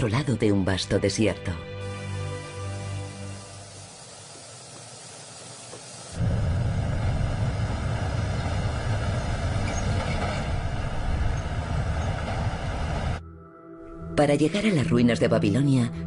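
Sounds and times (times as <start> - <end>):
vehicle road and wind rumble: 6.2 - 13.2.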